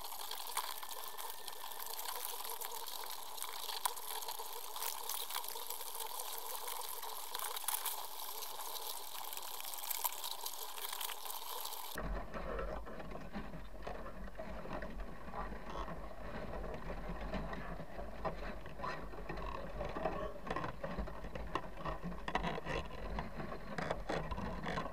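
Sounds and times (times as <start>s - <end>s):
crabs scraping on wire mesh: 0.0s - 12.0s.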